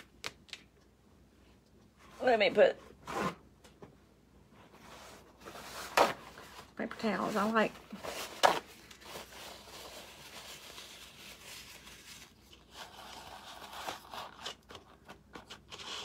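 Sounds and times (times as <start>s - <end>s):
paper rustling and crinkling: 4.9s - 16.0s.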